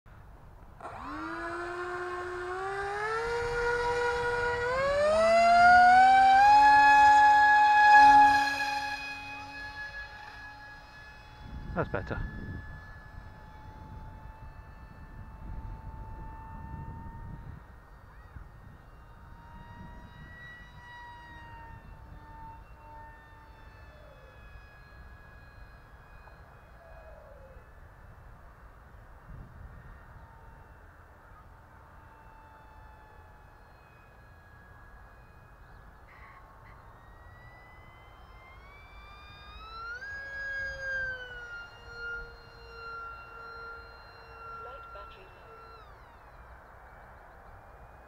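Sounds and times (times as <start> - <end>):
electric motor whine: 0.1 - 48.0
lower motor tone: 0.1 - 48.0
wind rumble on microphone: 11.3 - 23.4, 27.8 - 30.9.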